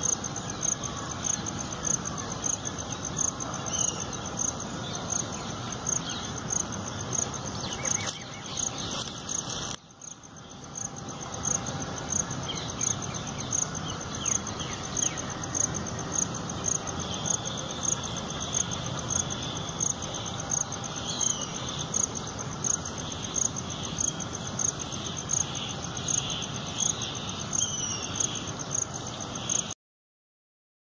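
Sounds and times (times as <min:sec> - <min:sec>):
insect chirping: 0:00.0 - 0:29.8
outdoor background hiss: 0:00.0 - 0:29.8.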